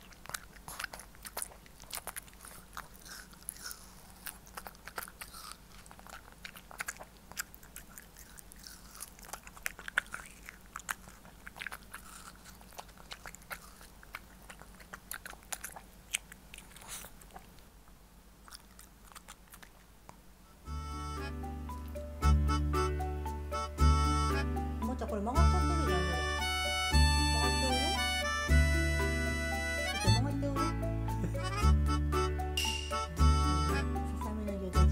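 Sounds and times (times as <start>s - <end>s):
dog crunching watermelon: 0.0s - 20.3s, 23.2s - 30.2s.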